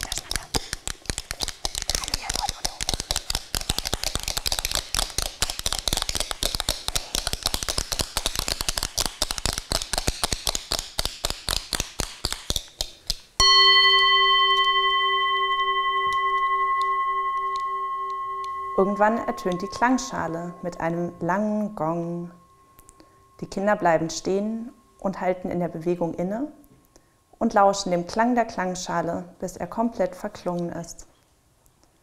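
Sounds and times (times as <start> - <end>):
singing bowl ringing: 13.4 - 26.5.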